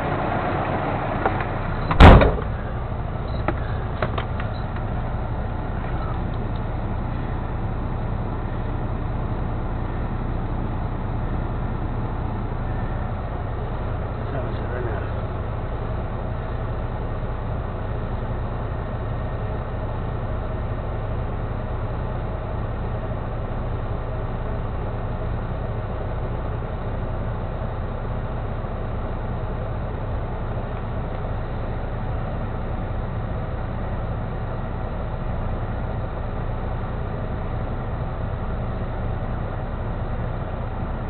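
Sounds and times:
truck diesel engine idling: 0:00.0 - 0:41.0.

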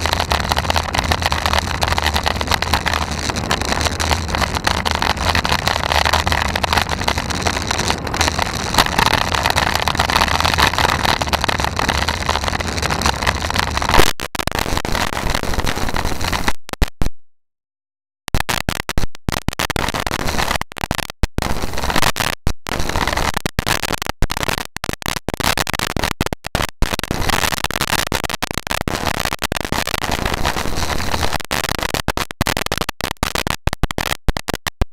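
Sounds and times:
wind and road noise on microphone: 0:00.0 - 0:14.0.

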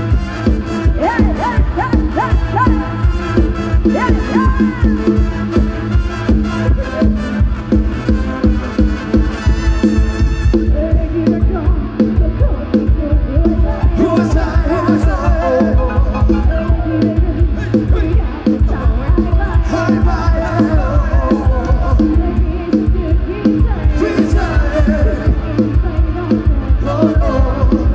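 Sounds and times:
loud dance music over speakers: 0:13.8 - 0:26.2.

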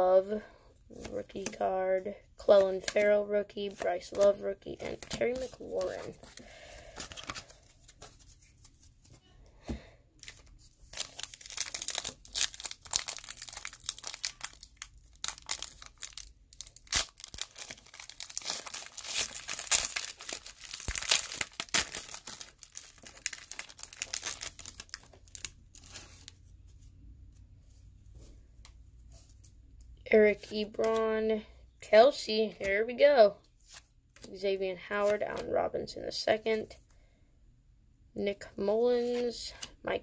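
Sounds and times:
wrapper tearing and crinkling: 0:10.2 - 0:26.4.

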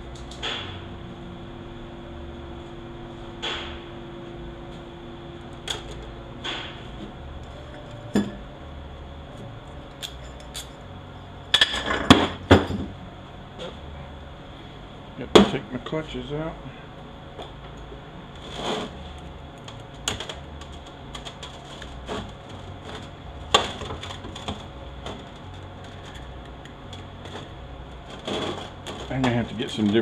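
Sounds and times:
steady background hum: 0:00.0 - 0:30.0.

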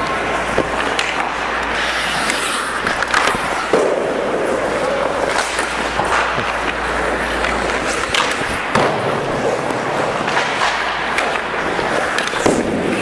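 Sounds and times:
hockey sticks and pucks knocking: 0:00.0 - 0:13.0
skate blades scraping ice: 0:00.0 - 0:13.0.

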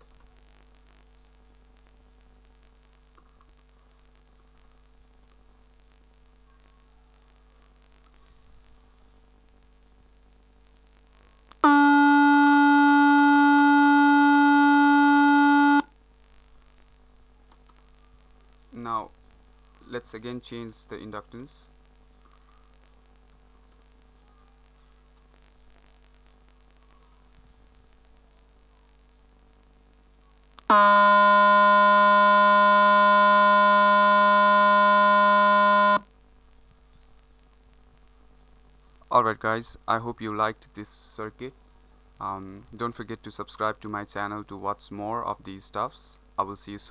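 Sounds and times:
buzzy square-wave tone: 0:11.0 - 0:15.9, 0:29.9 - 0:36.1.

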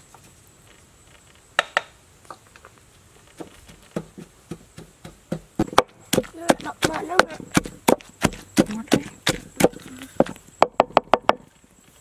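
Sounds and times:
pestle pounding in a mortar: 0:03.6 - 0:11.4.

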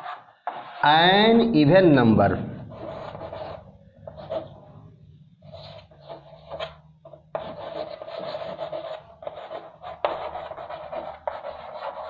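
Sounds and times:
chalk scraping on a chalkboard: 0:00.0 - 0:00.9, 0:02.7 - 0:04.6, 0:05.5 - 0:12.0.

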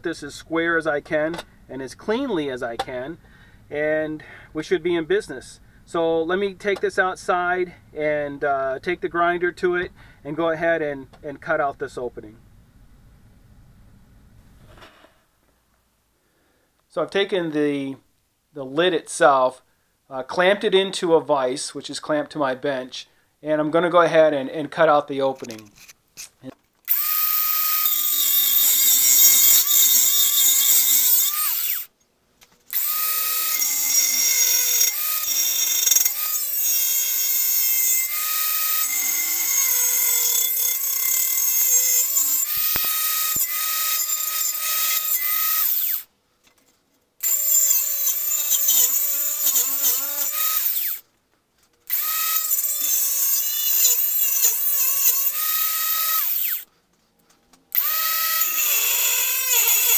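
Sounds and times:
angle grinder cutting steel: 0:26.9 - 0:31.9, 0:32.7 - 0:46.0, 0:47.2 - 0:51.0, 0:51.9 - 0:56.7, 0:57.7 - 0:59.9.

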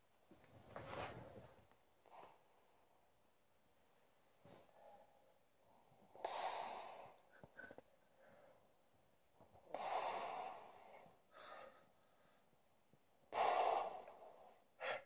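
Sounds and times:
man breathing heavily through nose: 0:06.1 - 0:08.6, 0:09.6 - 0:12.6, 0:13.3 - 0:15.0.

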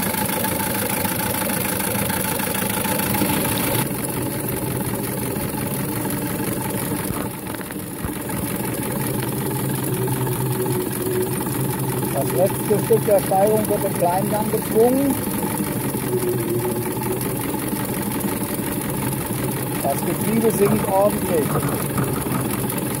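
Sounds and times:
gear whine: 0:00.0 - 0:23.0
steam engine beat: 0:08.1 - 0:23.0.

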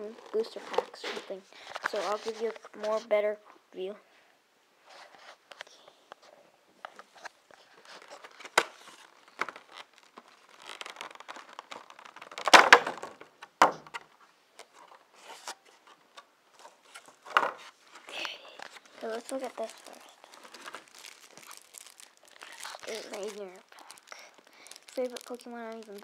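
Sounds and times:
plastic clicks and rustles: 0:06.8 - 0:26.0.

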